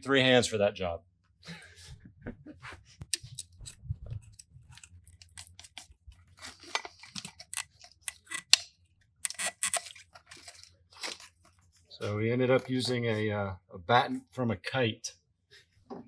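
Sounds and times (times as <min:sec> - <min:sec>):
clicks and rustles of hands: 0:02.4 - 0:11.7
rod scraping against plastic: 0:09.2 - 0:11.3.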